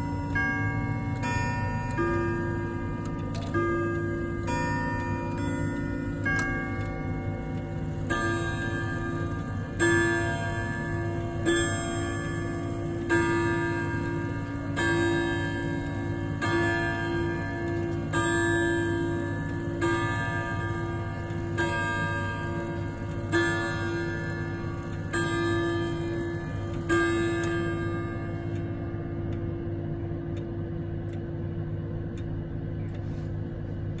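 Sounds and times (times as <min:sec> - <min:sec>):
clock chime rods striking: 0:00.0 - 0:29.5.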